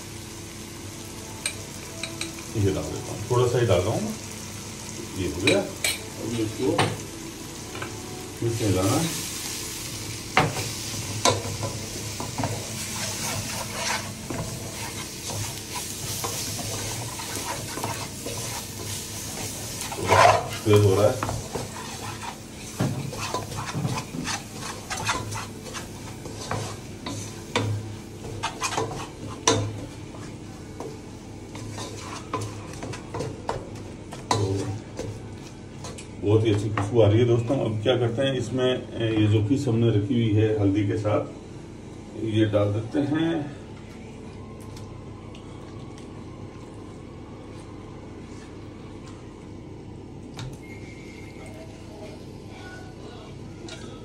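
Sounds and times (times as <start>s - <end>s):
light sizzle of frying: 0.0s - 52.8s
wooden spatula scraping a pot: 12.8s - 27.5s, 28.3s - 29.5s, 31.6s - 33.3s.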